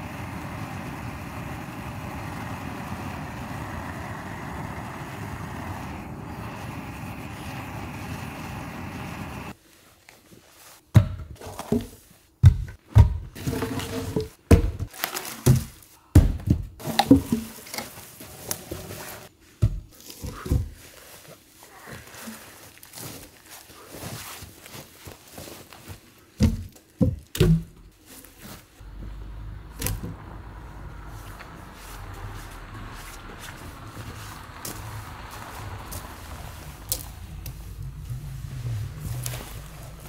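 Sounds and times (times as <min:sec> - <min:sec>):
steady rushing noise: 0:00.0 - 0:09.6, 0:28.8 - 0:40.0
heavy knocks and thuds: 0:14.4 - 0:14.9.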